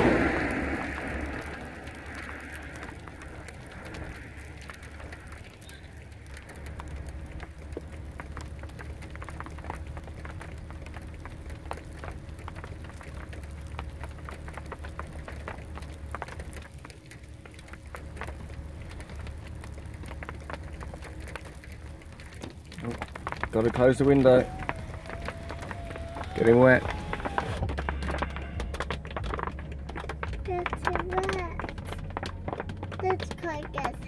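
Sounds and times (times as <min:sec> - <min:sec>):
low steady rumble: 0:00.0 - 0:34.0
raindrops striking a car: 0:00.0 - 0:34.0.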